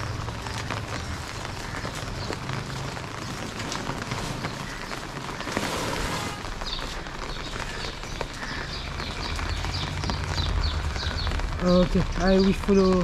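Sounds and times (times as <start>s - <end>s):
rain falling and dripping: 0.0s - 13.0s
bird chirping: 6.6s - 13.0s.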